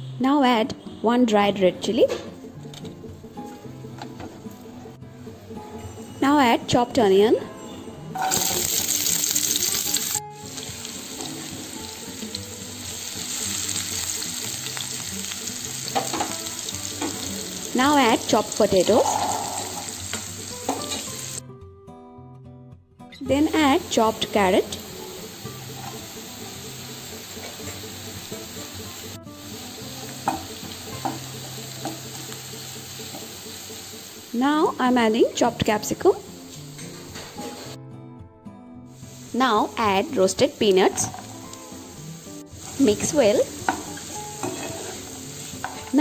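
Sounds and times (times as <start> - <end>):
onion sizzling in hot oil: 8.2 - 21.4, 23.3 - 37.8, 38.9 - 46.0
spatula scraping a pan: 43.7 - 45.9.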